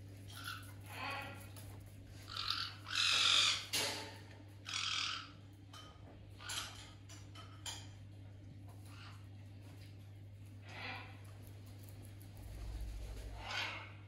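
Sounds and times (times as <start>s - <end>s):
parrot screeching squawks: 2.3s - 3.8s, 4.6s - 5.4s, 13.4s - 14.0s.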